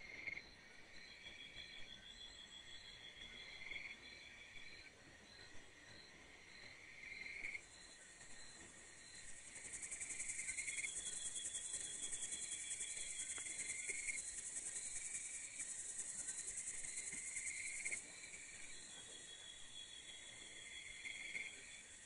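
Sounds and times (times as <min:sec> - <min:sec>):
low insect trill: 0:00.0 - 0:22.0
high fast-pulsing insect chirr: 0:07.6 - 0:22.0.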